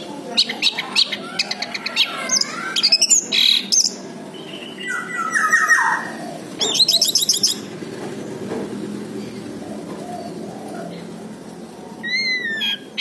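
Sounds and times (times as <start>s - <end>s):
thrush singing whistled notes: 2.4s - 7.7s.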